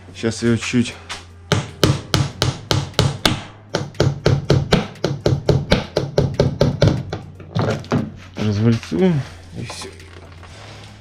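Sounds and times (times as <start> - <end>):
hammer tapping a nail: 1.5 - 8.1.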